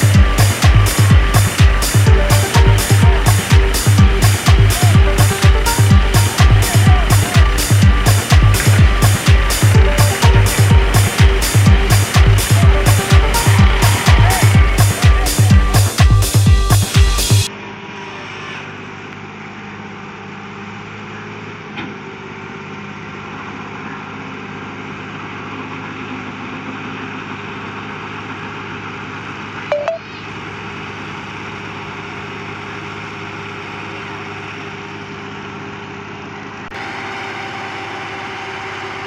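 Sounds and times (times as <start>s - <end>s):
brief loud pitch-shifting sound: 0.0s - 17.5s, 29.7s - 30.4s
tractor diesel engine running: 0.0s - 18.2s, 18.8s - 39.0s.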